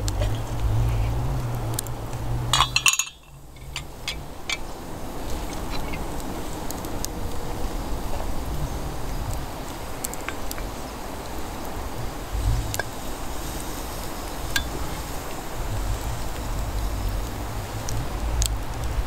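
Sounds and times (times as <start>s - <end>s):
steady hiss: 0.0s - 19.0s
wind rumble on microphone: 0.0s - 19.0s
metal cookware clinking: 2.5s - 4.6s.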